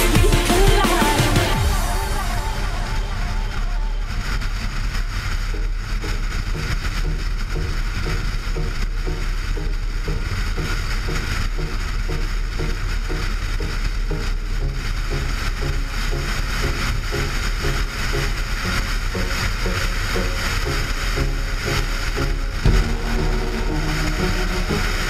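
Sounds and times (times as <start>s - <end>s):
car engine and road noise: 1.4s - 25.0s.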